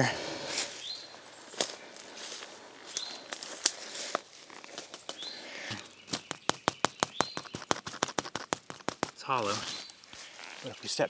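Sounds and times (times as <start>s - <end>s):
bird chirping: 0.7s - 1.6s, 2.8s - 3.4s, 4.9s - 11.0s
fingers tapping on hollow pipe: 5.7s - 9.2s.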